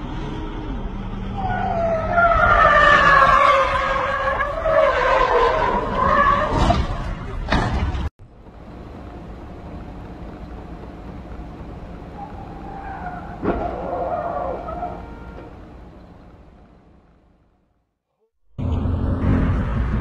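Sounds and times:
road hum: 0:00.0 - 0:20.0
car engine running: 0:08.2 - 0:17.7.

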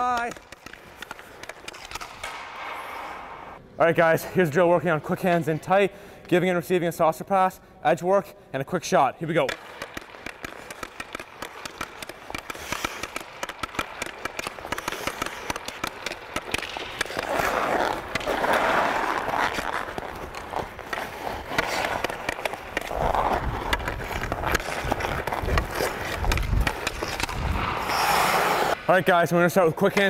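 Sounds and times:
hockey stick clicking on puck: 0:00.0 - 0:03.4, 0:09.4 - 0:28.8
skate blades scraping ice: 0:00.0 - 0:03.6, 0:09.2 - 0:30.0.

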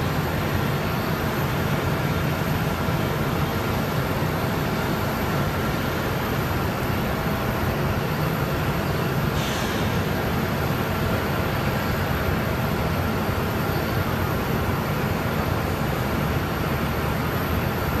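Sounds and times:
brief hiss: 0:09.4 - 0:10.0.

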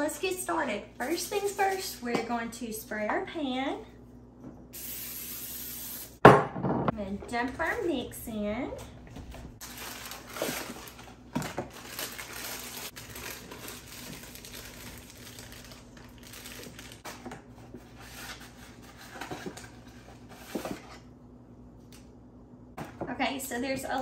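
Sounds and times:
box and bag crinkling: 0:09.6 - 0:17.3.

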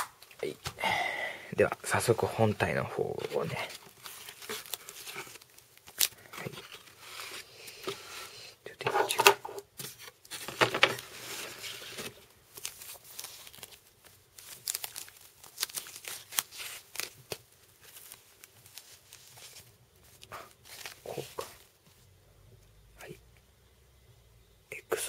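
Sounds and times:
plastic bag crinkling: 0:03.2 - 0:07.4, 0:10.3 - 0:21.7.

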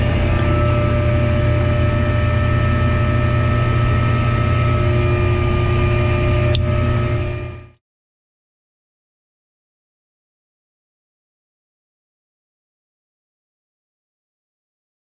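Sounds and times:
propeller engine droning: 0:00.0 - 0:07.8.

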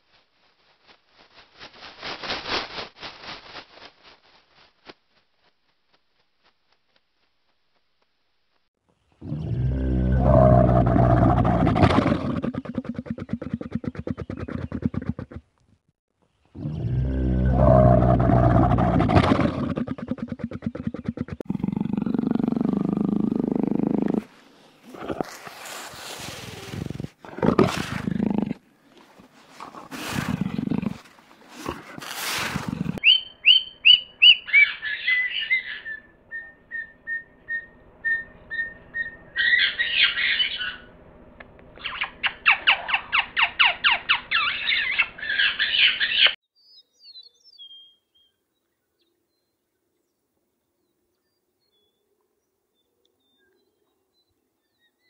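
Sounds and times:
big cat growling and snarling: 0:09.2 - 0:15.4, 0:16.6 - 0:25.6, 0:26.4 - 0:33.0
birds chirping and chattering: 0:33.0 - 0:40.9, 0:41.8 - 0:46.4.

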